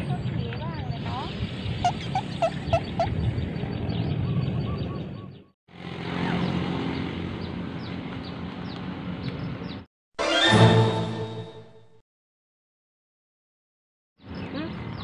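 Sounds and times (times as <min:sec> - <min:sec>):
birds chirping: 0:00.0 - 0:09.9, 0:14.2 - 0:15.0.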